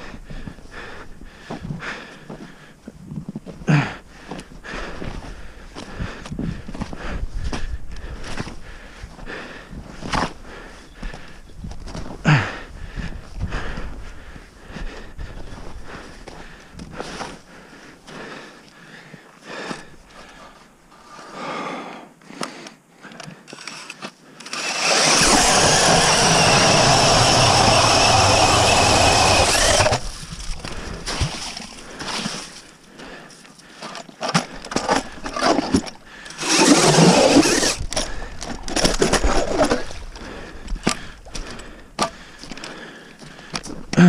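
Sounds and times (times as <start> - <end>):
cordless drill boring ice: 23.5 - 30.5, 35.2 - 38.2.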